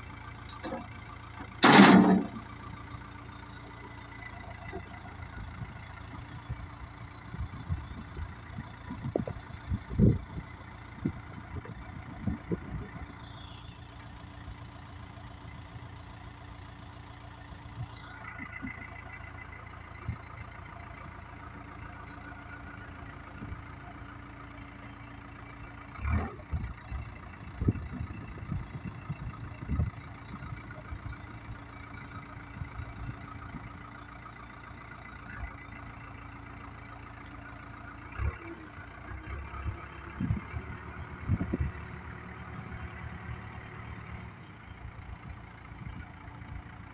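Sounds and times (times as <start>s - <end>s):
diesel engine running: 0.0s - 46.9s
machine knocks and clanks: 1.5s - 2.4s.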